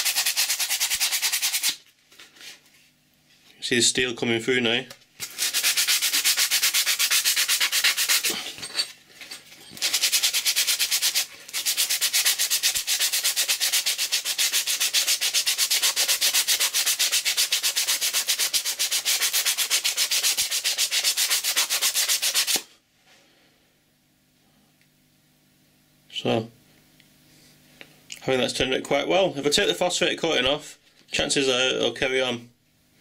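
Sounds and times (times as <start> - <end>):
sandpaper rubbing on steel: 0.0 - 1.8, 5.2 - 8.4, 9.6 - 22.6.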